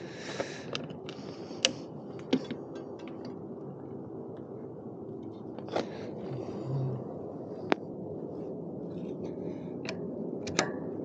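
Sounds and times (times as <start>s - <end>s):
metallic clicks and knocks: 9.8s - 10.8s.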